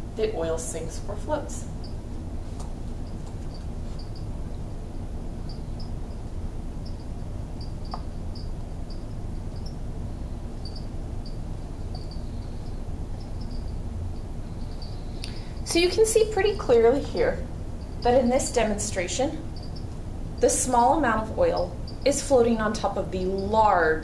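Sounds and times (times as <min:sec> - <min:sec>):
low room hum: 0:00.0 - 0:24.0
faint high-pitched chirps: 0:05.4 - 0:15.8.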